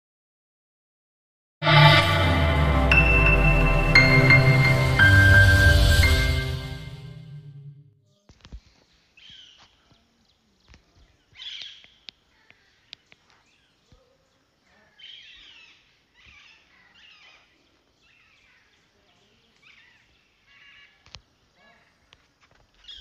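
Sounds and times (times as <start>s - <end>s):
faint bird chirping: 8.1s - 23.0s.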